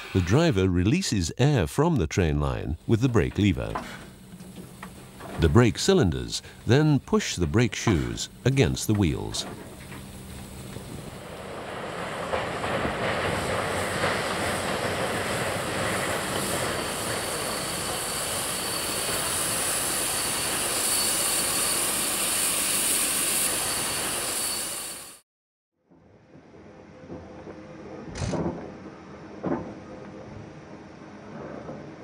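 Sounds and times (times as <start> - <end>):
train rushing past: 5.3 - 25.2
high thin squeal: 16.5 - 25.2.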